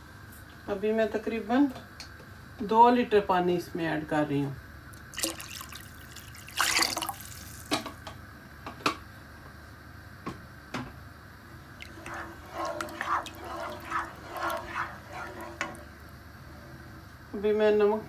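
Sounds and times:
water splashing in a pot: 5.0 - 7.9, 11.7 - 16.0.

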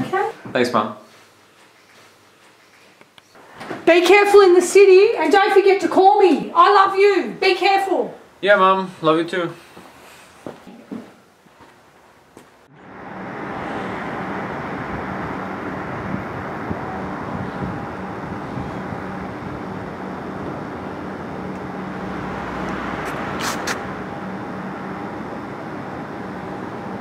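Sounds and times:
city road traffic: 12.5 - 27.0.

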